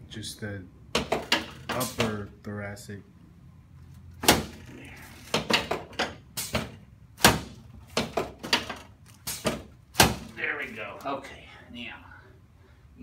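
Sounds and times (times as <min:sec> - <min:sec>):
chiropractic knocks and thumps: 0:00.9 - 0:02.3, 0:04.1 - 0:10.4.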